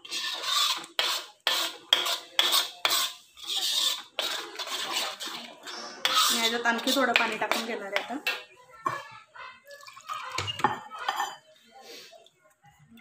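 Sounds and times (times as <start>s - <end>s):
spoon stirring thick gravy in metal pot: 0.0s - 9.1s.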